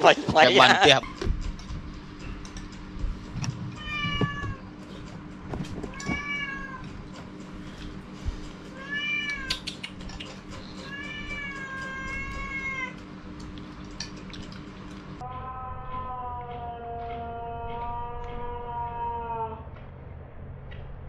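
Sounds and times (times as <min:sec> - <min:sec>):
cat meowing: 0:03.8 - 0:04.7, 0:05.9 - 0:06.9, 0:08.8 - 0:09.6, 0:10.8 - 0:13.0, 0:15.2 - 0:19.7.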